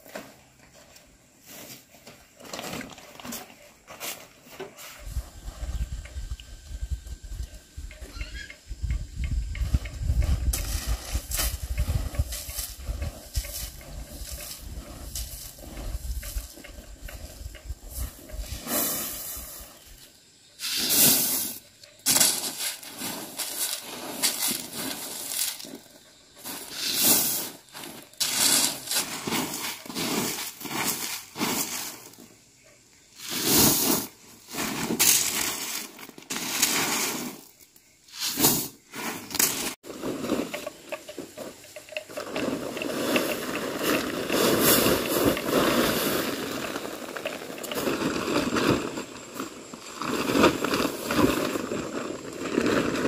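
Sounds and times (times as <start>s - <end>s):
plastic tarp rustling: 0.0s - 5.0s, 22.1s - 32.1s, 33.2s - 37.5s, 38.2s - 53.0s
corn kernels poured into sack: 20.6s - 32.2s, 33.2s - 53.0s.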